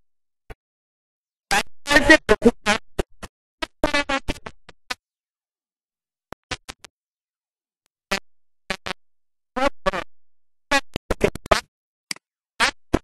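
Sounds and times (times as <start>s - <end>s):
woman speaking in fragments: 1.9s - 2.6s.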